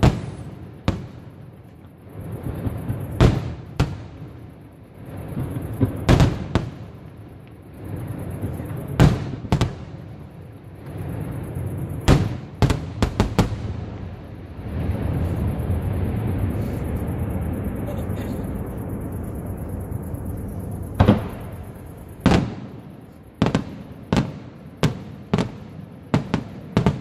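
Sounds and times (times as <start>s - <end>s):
low rolling rumble: 13.6s - 22.3s.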